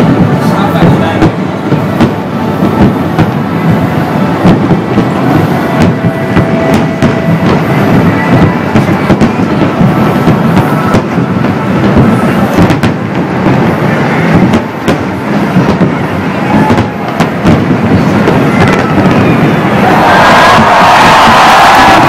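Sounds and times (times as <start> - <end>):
fireworks rumbling bursts: 0.0 - 22.0
sharp fireworks bangs: 0.0 - 22.0.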